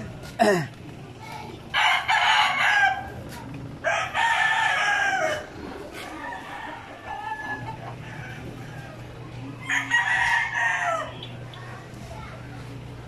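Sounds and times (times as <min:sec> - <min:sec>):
rooster crowing: 0:01.8 - 0:03.2, 0:03.8 - 0:05.5, 0:06.1 - 0:11.2.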